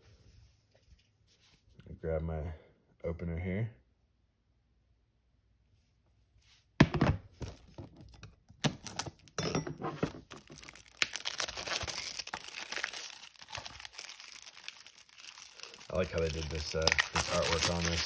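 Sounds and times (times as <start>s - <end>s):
plastic wrap crinkling and tearing: 8.6s - 9.4s, 10.2s - 18.0s.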